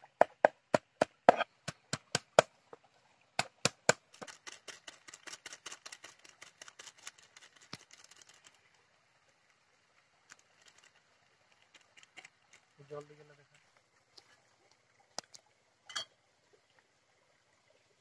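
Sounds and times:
knife chopping on wooden board: 0.2 - 2.5.

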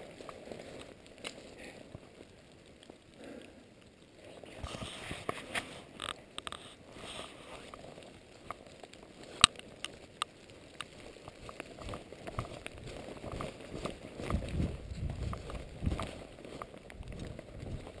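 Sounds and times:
footsteps on wet dirt trail: 0.0 - 18.0
light ticks: 9.2 - 18.0.

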